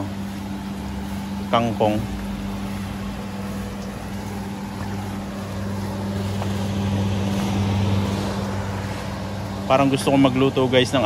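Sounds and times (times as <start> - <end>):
low machine hum: 0.0 - 11.0
rushing noise: 0.0 - 11.0.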